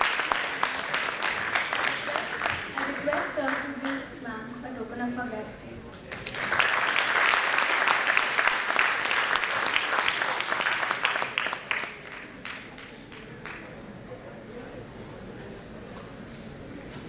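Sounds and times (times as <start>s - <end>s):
audience applauding: 0.0s - 4.1s, 6.1s - 13.7s.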